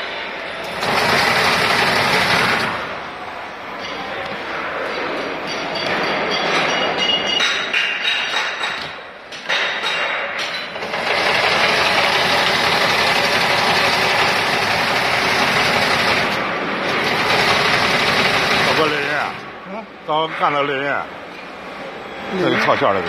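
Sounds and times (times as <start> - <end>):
braiding machine clattering: 10.5 - 19.4.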